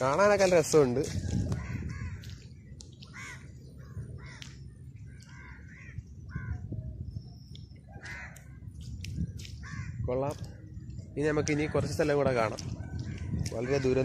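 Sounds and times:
crows cawing: 1.3 - 6.7, 7.9 - 8.6, 9.4 - 10.1, 11.5 - 14.0.

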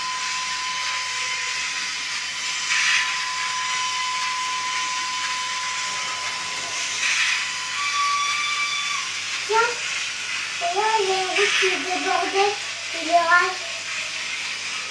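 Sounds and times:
steady steam hiss: 0.0 - 14.9
thin steady whine: 0.0 - 14.9
hissing steam puffs: 6.4 - 14.9.

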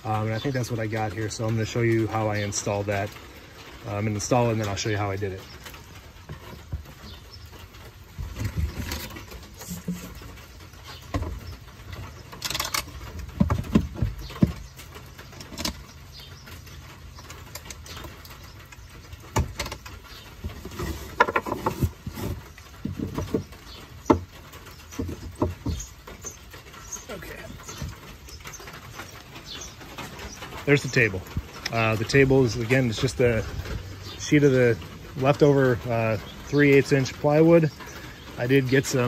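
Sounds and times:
wooden table knocking and rattling: 20.5 - 23.5, 25.0 - 25.9.

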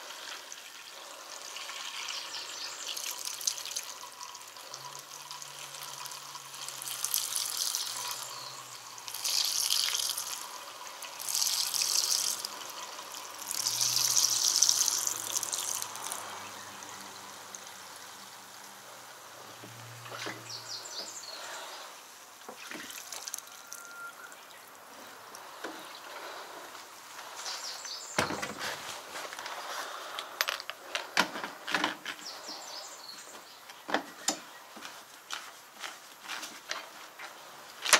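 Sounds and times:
fuel pouring from can spout: 0.0 - 28.3.

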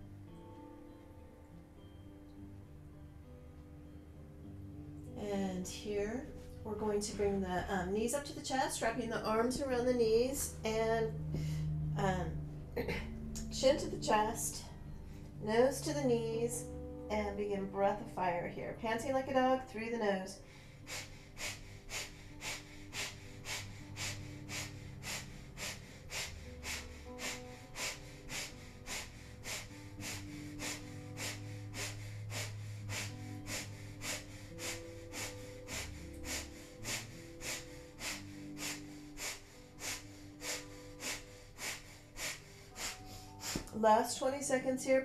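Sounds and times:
background music with held notes: 0.0 - 45.0
rapid sharp nasal exhalations: 20.6 - 43.7.

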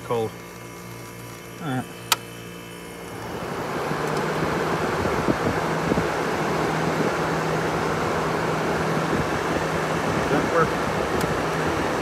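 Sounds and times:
fan air rushing: 0.0 - 12.0
low motor hum: 0.0 - 12.0.

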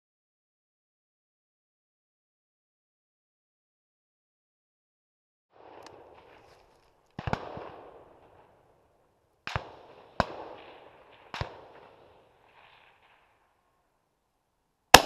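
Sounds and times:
gunshots echoing: 5.6 - 8.7, 9.4 - 13.4.

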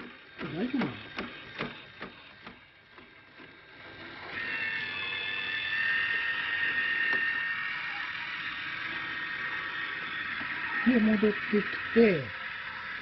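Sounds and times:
rake motor whine: 0.0 - 13.0.

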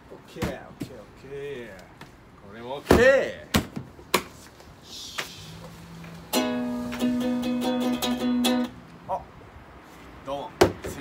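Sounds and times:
ukulele chords strummed: 6.3 - 8.8.

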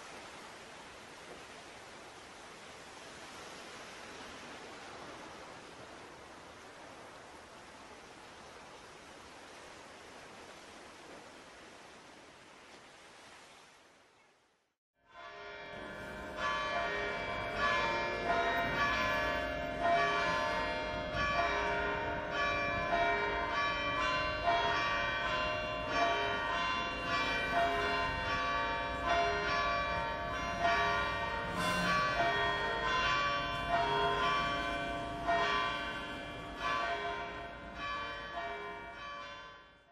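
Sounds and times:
bells ringing: 15.1 - 39.9.

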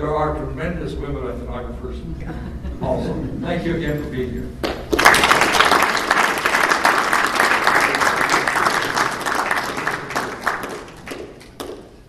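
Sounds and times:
audience applause: 4.6 - 11.9.

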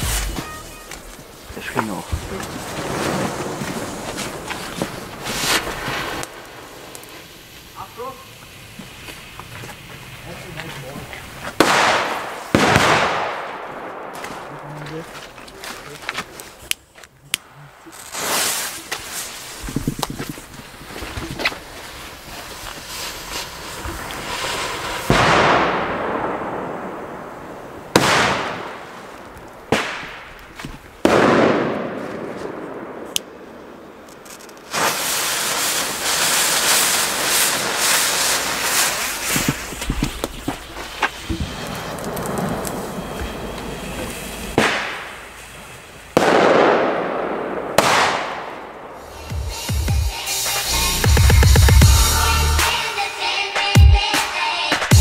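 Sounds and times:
fuse hissing: 0.0 - 11.6, 17.3 - 25.1, 34.7 - 46.2
firecracker bangs echoing: 10.2 - 16.4, 21.6 - 52.8.

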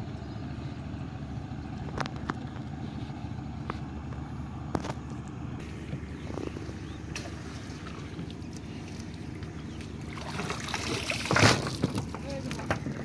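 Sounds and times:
steady low rumble: 0.0 - 13.0
knocks and clicks from boat gear: 11.2 - 13.0.

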